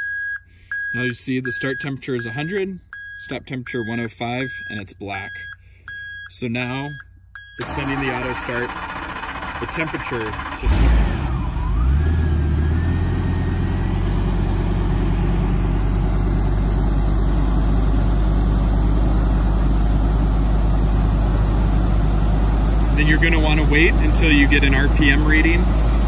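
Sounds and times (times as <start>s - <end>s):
engine droning: 7.6s - 26.0s.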